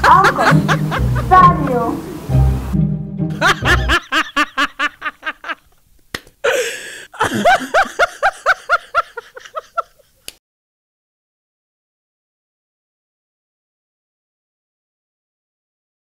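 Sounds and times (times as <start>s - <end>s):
person laughing: 0.0s - 1.6s, 3.3s - 5.7s, 6.4s - 10.3s
breathy rush: 6.4s - 9.6s.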